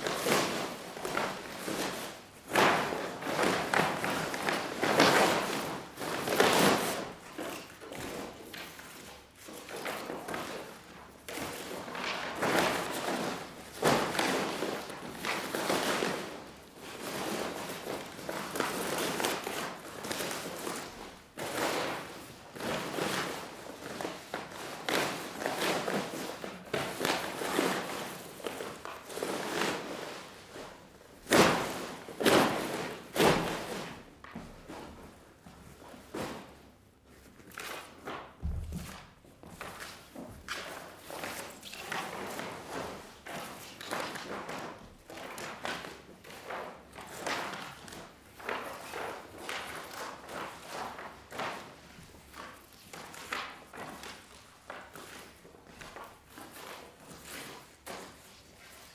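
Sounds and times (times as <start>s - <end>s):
sack thumping on wooden floor: 38.4s - 39.8s.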